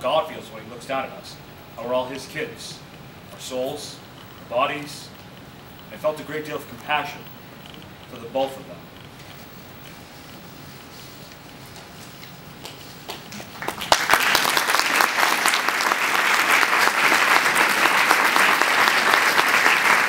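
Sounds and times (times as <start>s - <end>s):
audience applauding: 13.1s - 20.0s.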